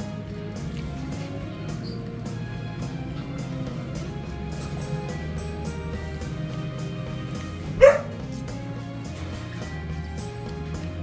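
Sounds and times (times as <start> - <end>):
background music: 0.0 - 11.0
small dog barking: 7.8 - 8.2.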